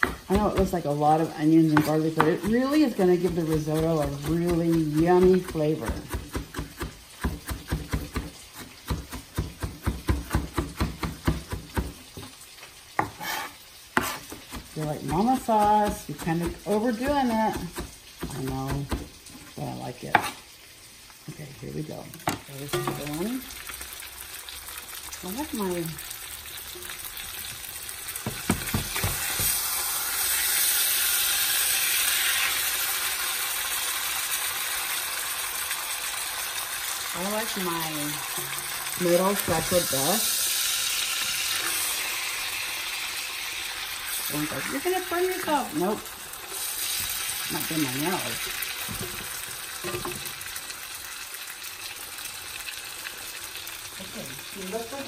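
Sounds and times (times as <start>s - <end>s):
fish sizzling in a skillet: 0.0s - 55.0s
knife chopping on plastic board: 3.2s - 12.3s, 28.2s - 29.6s.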